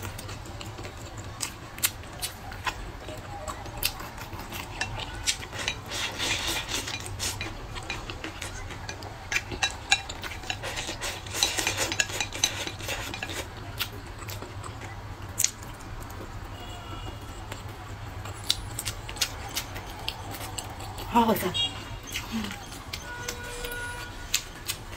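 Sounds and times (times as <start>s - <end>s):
chewing: 0.0s - 24.9s
chopsticks tapping ceramic bowl: 4.5s - 13.4s.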